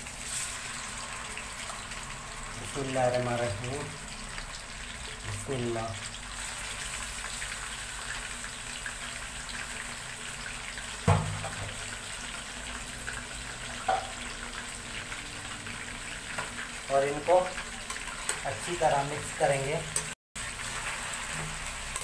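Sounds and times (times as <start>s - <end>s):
chicken sizzling in hot oil: 0.0s - 22.0s
loud knock: 11.1s - 11.6s.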